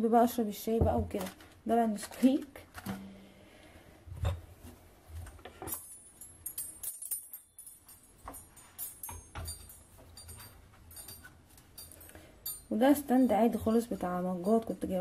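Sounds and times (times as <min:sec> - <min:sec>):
metal cutlery jangling on wire stand: 0:05.5 - 0:15.0.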